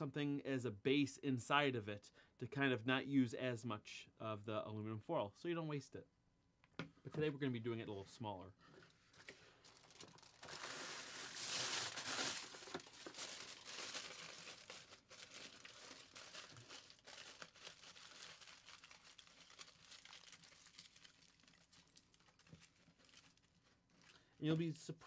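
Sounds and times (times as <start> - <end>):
aluminum foil crinkling: 8.9 - 24.4
foil crumpled into a ball: 9.2 - 24.2.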